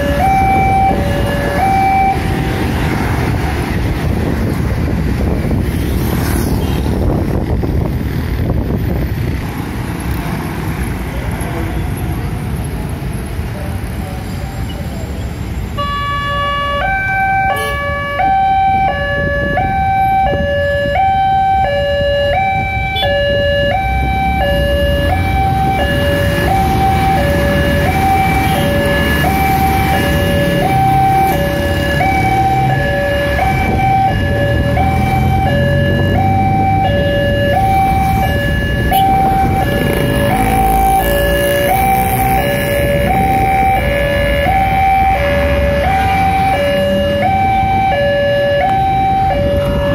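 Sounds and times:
level crossing alarm: 0.0s - 2.6s, 15.8s - 49.9s
motorcycles passing: 0.0s - 15.7s, 16.4s - 49.9s
road traffic: 0.0s - 49.9s.

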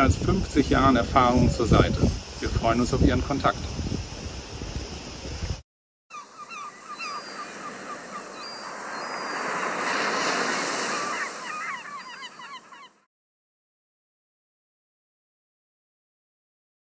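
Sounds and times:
seabird squawks: 6.1s - 13.1s
surf wave: 6.2s - 13.0s.

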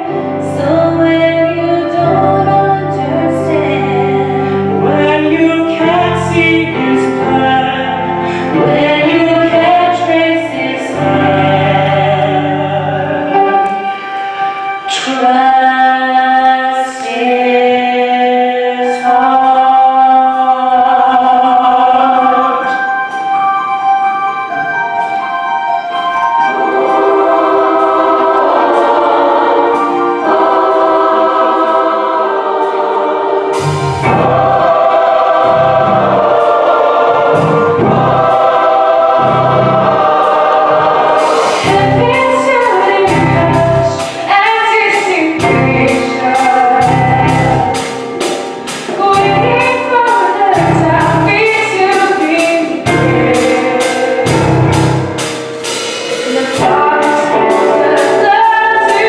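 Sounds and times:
choir and orchestra music: 0.0s - 59.0s
sung melody: 0.0s - 59.0s
steady low beat: 33.5s - 42.4s.

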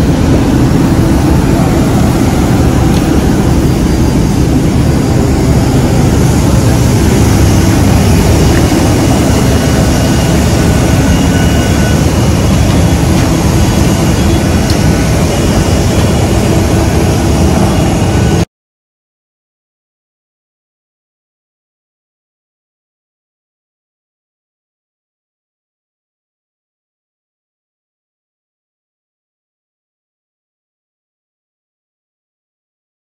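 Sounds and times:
jet aircraft roar: 0.0s - 18.5s.

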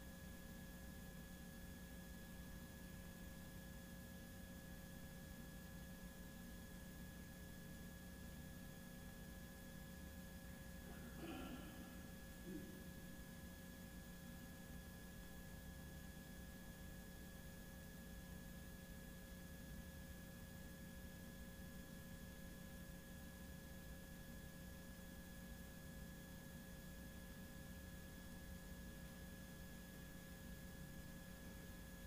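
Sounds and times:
faint hum: 0.0s - 18.7s.

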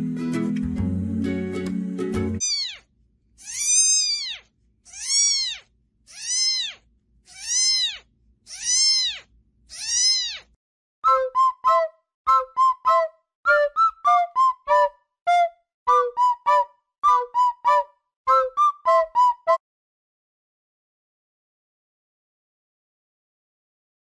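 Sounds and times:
kitten meowing: 2.4s - 10.6s
flute-like music notes: 11.0s - 19.6s.

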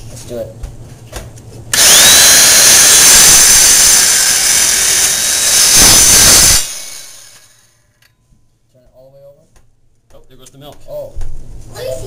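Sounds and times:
saw motor winding down: 1.7s - 7.6s
circular saw whining: 1.7s - 7.7s.

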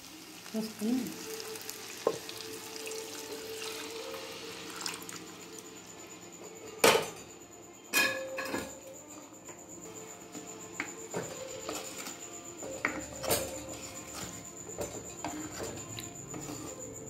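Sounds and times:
utensils clanking against pot: 7.9s - 8.8s, 11.1s - 16.8s.

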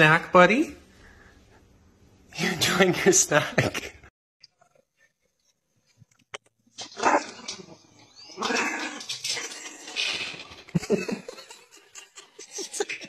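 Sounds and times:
dog barking and growling: 6.7s - 11.4s.

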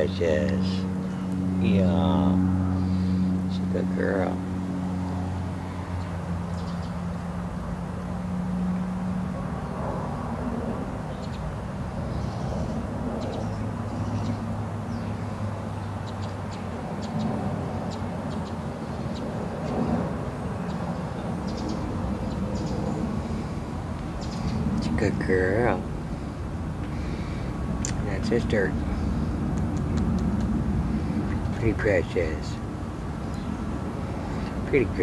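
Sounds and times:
low outdoor hum: 0.0s - 35.0s
bird chirps: 20.7s - 23.0s.

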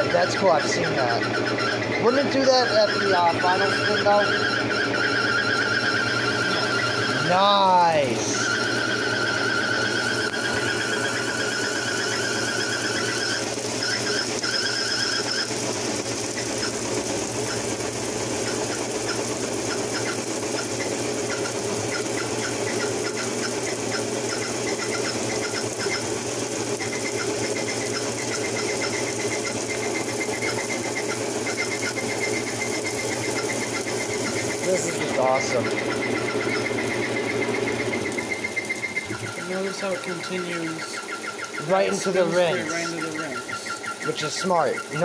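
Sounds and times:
high steady squeal: 0.0s - 45.0s
washing machine spinning drone: 0.0s - 45.0s
high steady tone: 2.0s - 15.5s, 27.1s - 45.0s.

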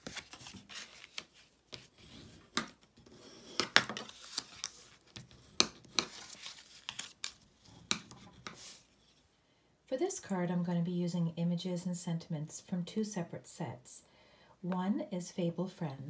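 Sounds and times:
paper rustling: 0.0s - 2.0s, 3.8s - 8.8s.

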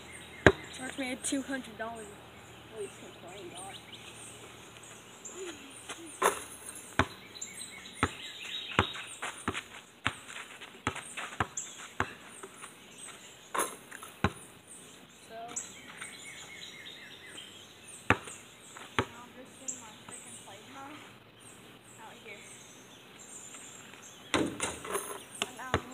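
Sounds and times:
birds chirping: 0.0s - 25.9s
basketball bouncing on hard ground: 0.2s - 1.0s, 5.9s - 14.5s, 18.0s - 20.3s, 24.3s - 25.9s.

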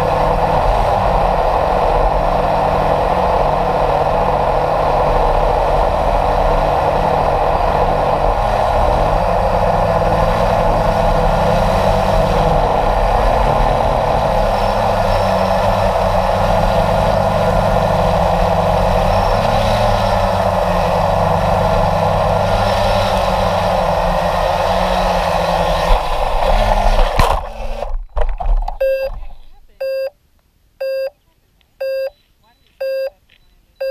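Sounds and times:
model jet motor running: 0.0s - 27.9s
sharp knocks and rattles: 25.9s - 29.3s.

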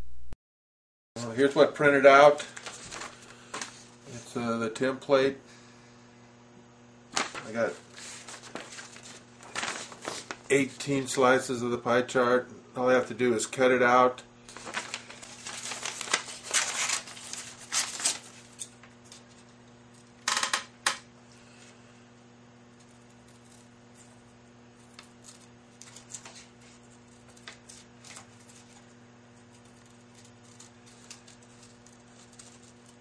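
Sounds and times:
steady low hum: 1.2s - 33.0s
paper rustling: 2.5s - 3.9s, 7.1s - 10.8s, 14.5s - 19.4s, 24.8s - 28.9s, 29.5s - 33.0s
scissors cutting paper: 14.5s - 20.0s, 22.8s - 33.0s.

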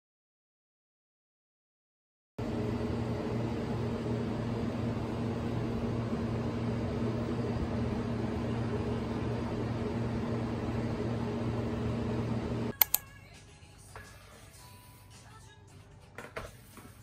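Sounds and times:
kitchen fan humming: 2.4s - 13.0s.

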